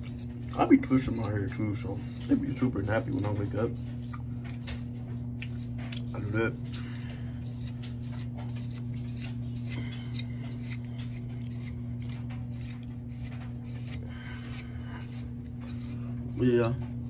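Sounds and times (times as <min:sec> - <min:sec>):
hair pick scratching through hair: 0:00.0 - 0:17.0
steady low hum: 0:00.0 - 0:17.0.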